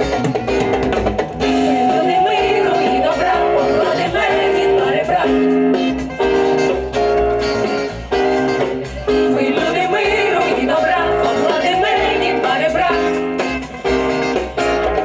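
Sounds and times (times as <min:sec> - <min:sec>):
live jazz band with singers: 0:00.0 - 0:15.0.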